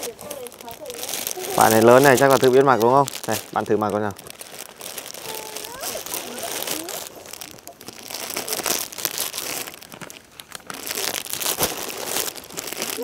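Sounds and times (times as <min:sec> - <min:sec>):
clothes crinkling and rustling: 0:00.0 - 0:13.0.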